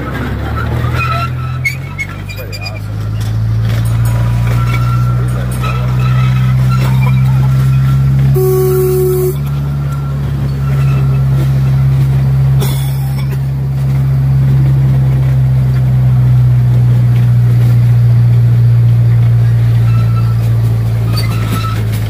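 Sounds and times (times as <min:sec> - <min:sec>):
train engine droning: 0:08.1 - 0:14.8.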